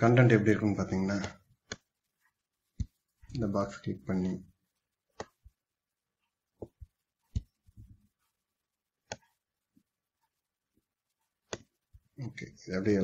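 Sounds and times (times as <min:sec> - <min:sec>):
computer mouse clicking: 0:09.0 - 0:09.4, 0:11.5 - 0:11.7.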